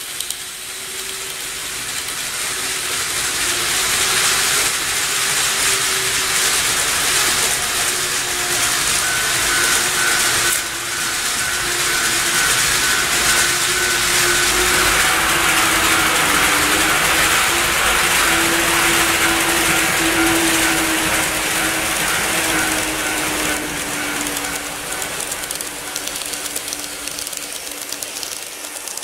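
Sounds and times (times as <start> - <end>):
model train running on track: 0.0 - 29.0
faint pulsing high tone: 5.9 - 28.9.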